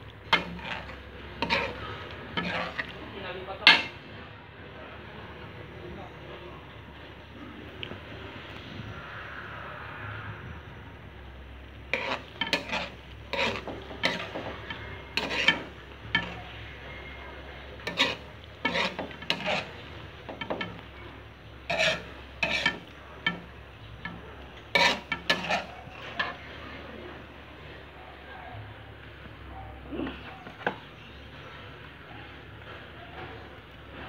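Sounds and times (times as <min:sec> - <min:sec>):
spoon scraping metal wok: 0:00.0 - 0:04.1, 0:11.7 - 0:26.7, 0:30.4 - 0:31.2.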